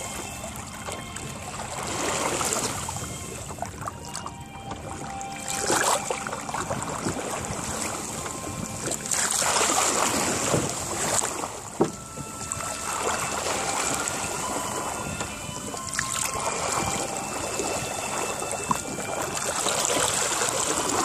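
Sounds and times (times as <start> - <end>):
water rushing along boat hull: 0.0 - 21.0
chop slapping against boat: 8.8 - 12.7.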